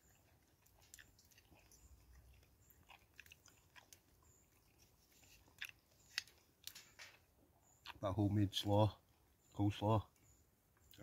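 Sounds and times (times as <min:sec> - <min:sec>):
chewing food: 0:00.0 - 0:08.0, 0:10.7 - 0:11.0.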